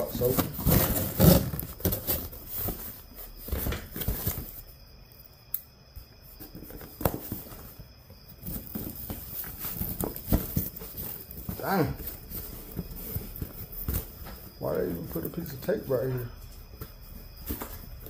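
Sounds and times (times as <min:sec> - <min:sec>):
cardboard box rustling and tearing: 0:00.0 - 0:04.5, 0:08.4 - 0:14.2.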